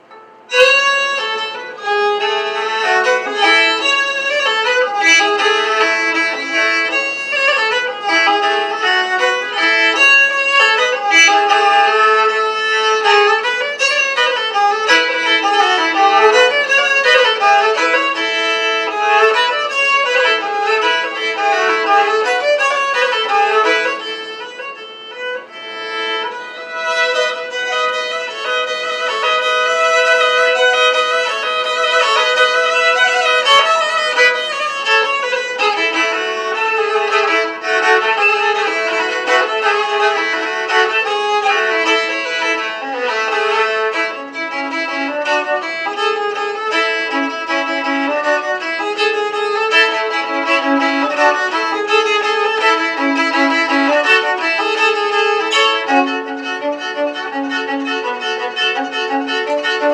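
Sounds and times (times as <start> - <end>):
solo fiddle melody: 0.0 - 59.9.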